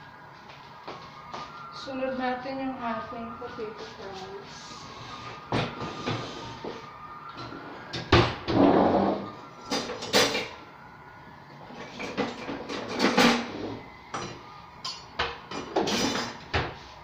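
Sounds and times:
dishes and pans clinking: 9.7 - 10.6, 12.0 - 13.6, 14.2 - 16.4.

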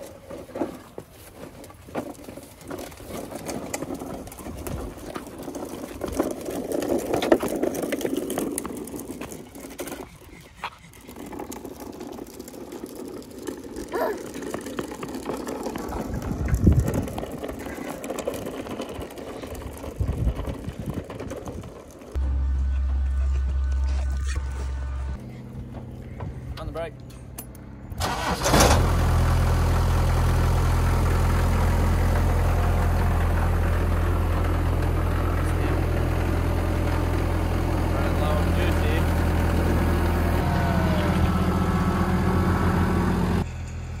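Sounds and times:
plastic wheels rattling over paving: 0.0 - 22.2, 29.7 - 41.1.

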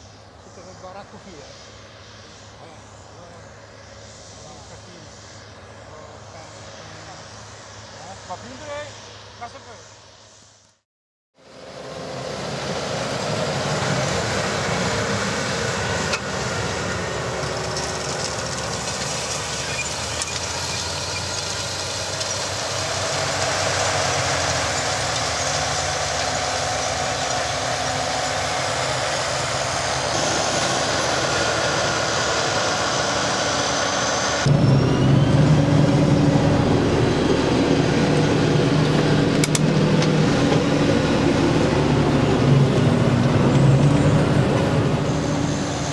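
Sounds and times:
tractor diesel engine running: 11.5 - 45.9.

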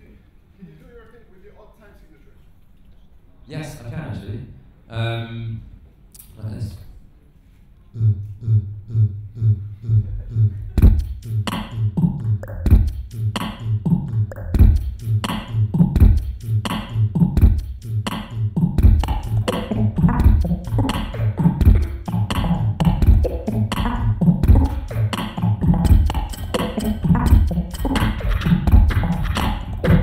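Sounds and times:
beatboxed beat through a pa: 8.0 - 30.0.

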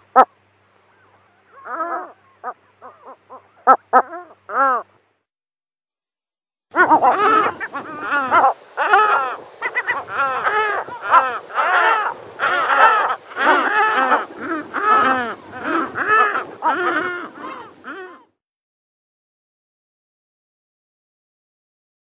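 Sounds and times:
gulls calling harshly: 6.7 - 18.4.

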